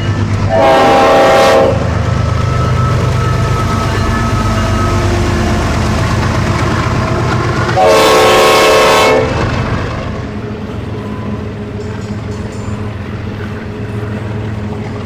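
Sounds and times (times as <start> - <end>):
locomotive engine droning: 0.0 - 15.0
train rumbling: 0.0 - 15.0
train air horn blast: 0.5 - 2.0, 7.8 - 9.4.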